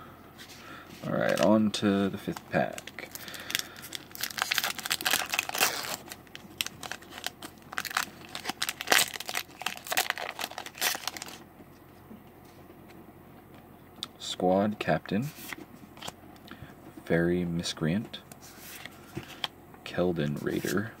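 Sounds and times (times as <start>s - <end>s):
foil wrapper crinkling: 1.0s - 11.4s.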